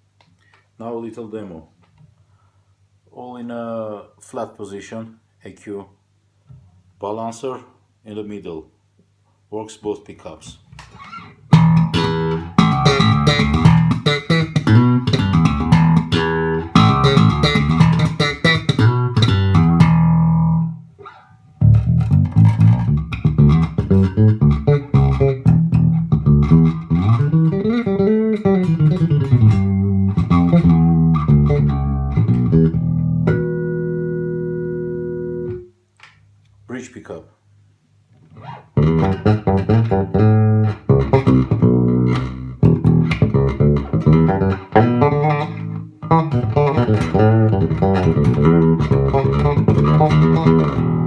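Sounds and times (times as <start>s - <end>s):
electric bass played fingerstyle: 10.7s - 35.8s, 38.1s - 51.0s.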